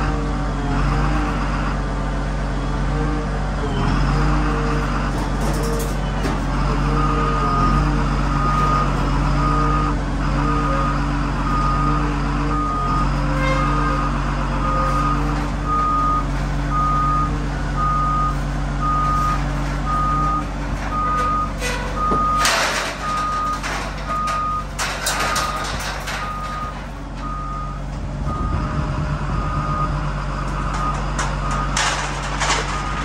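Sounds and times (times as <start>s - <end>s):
diesel engine running: 0.0s - 33.0s
reverse alarm beeping: 14.6s - 28.8s
bursts of clatter: 21.6s - 26.9s, 30.7s - 33.0s.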